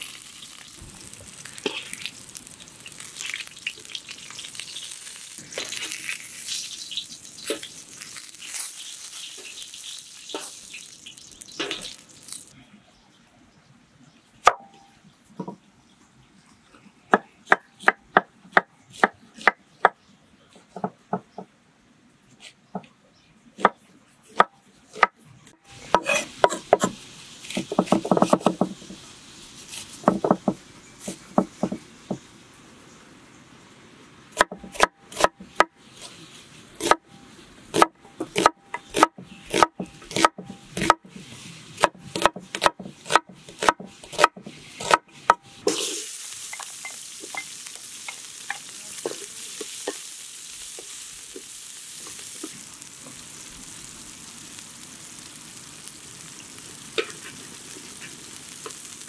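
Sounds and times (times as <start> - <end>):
pumpkin sizzling in oil: 0.0 - 12.6, 25.0 - 59.0.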